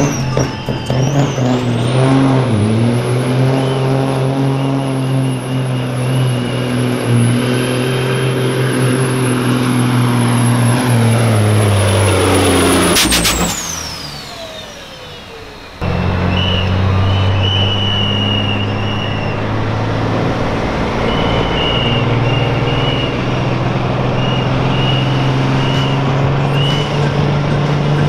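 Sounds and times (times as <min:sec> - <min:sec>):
turbo whistle: 0:00.0 - 0:08.1, 0:13.0 - 0:19.6, 0:21.0 - 0:27.3
diesel truck engine under load: 0:00.0 - 0:28.0.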